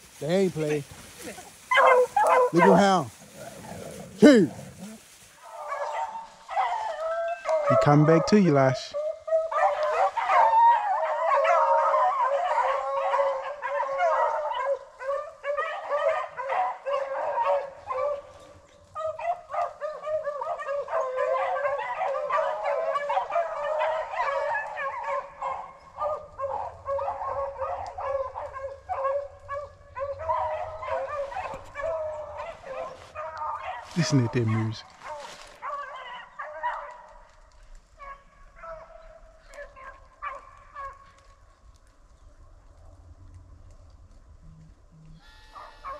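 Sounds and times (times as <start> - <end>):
hounds baying: 0.2 - 41.4, 45.3 - 45.9.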